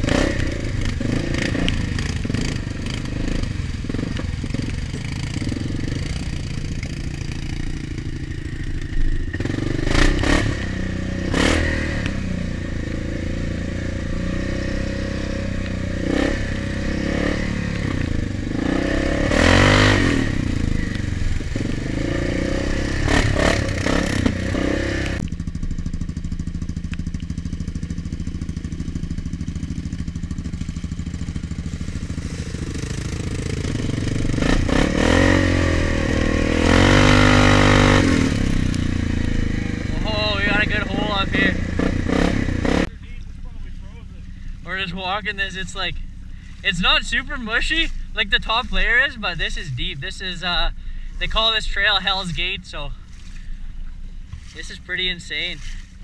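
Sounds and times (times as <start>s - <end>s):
atv engine revving: 0.0s - 56.0s
mud and water spraying: 29.7s - 34.4s.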